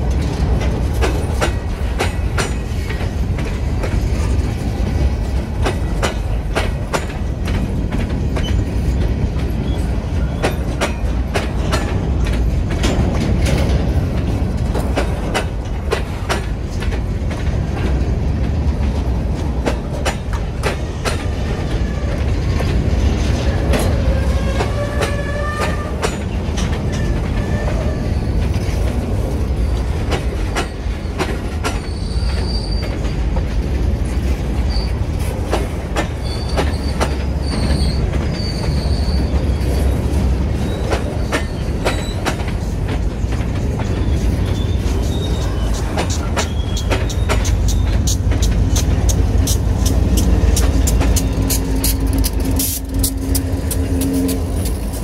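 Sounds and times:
freight train rumbling past: 0.0s - 55.0s
train wheels clicking and clanking: 0.0s - 55.0s
wheel squeals: 30.6s - 33.1s, 36.2s - 40.0s, 40.6s - 42.4s, 43.9s - 48.9s.

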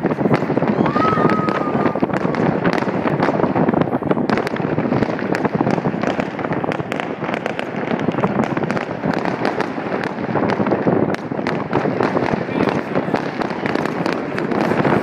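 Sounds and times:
firecrackers crackling and popping: 0.0s - 15.0s.

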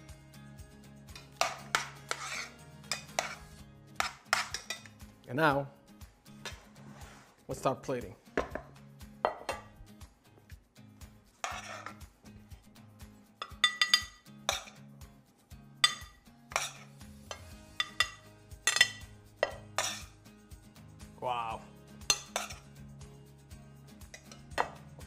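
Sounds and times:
soft background music: 0.0s - 25.0s
spoon clinking on ceramic plate: 1.2s - 3.4s, 4.0s - 5.0s, 8.4s - 9.7s, 13.4s - 14.8s, 15.8s - 20.1s, 22.1s - 22.7s, 24.1s - 24.8s
metal spoon scraping a pot: 1.2s - 5.0s, 11.4s - 12.1s, 13.4s - 14.8s, 15.8s - 20.2s, 22.1s - 22.7s.

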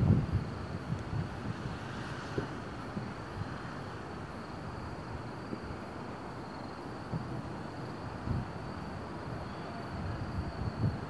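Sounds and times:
distant fireworks thumps: 2.3s - 3.2s.

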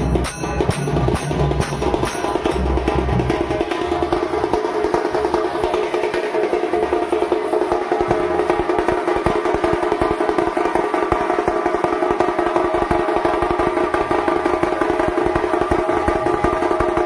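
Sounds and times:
steady ringing tone: 0.0s - 2.8s
dhol drum beats: 0.0s - 17.0s
rapid tasha drum strokes: 0.0s - 17.0s.

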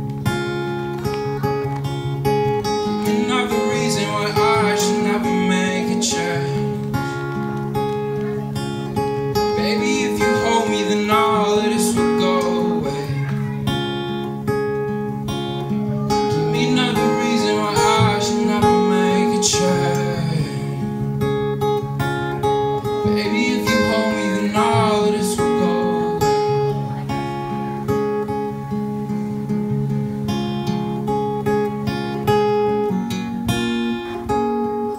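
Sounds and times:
acoustic guitar strumming: 0.0s - 34.9s
man singing: 2.8s - 7.3s, 9.4s - 13.6s, 16.0s - 21.0s, 22.8s - 26.5s.

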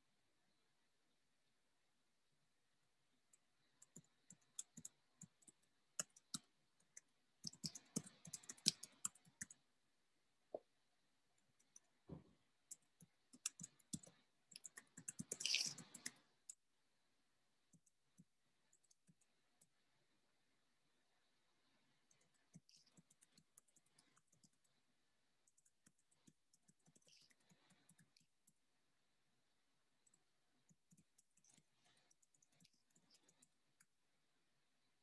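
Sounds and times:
keyboard and mouse clicking: 3.3s - 9.6s, 12.6s - 16.6s.

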